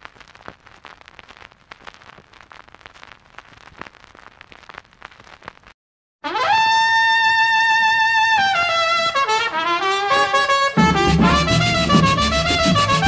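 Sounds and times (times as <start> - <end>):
steady hiss: 0.0 - 5.7
vinyl record crackle: 0.0 - 5.8.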